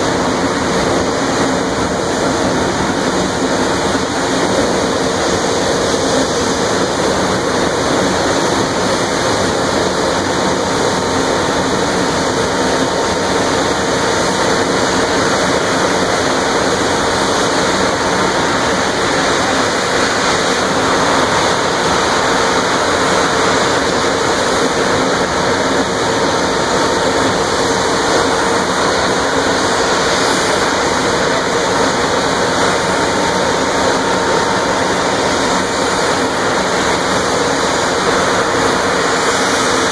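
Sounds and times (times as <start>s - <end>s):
loud rushing of venting fire: 0.0s - 39.9s.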